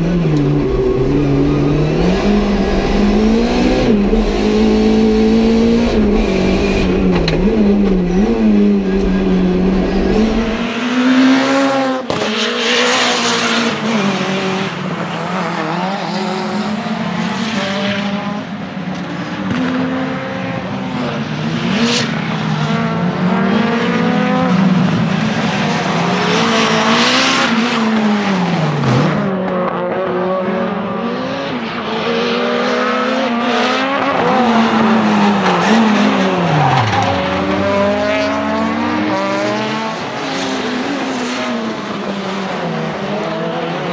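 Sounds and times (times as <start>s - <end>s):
race car engine accelerating: 0.0s - 20.6s, 21.4s - 43.9s.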